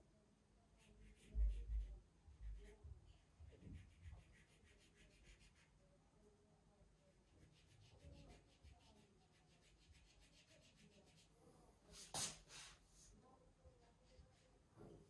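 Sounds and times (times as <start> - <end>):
marker rubbing on wallpaper: 3.4 - 5.8, 7.3 - 13.1.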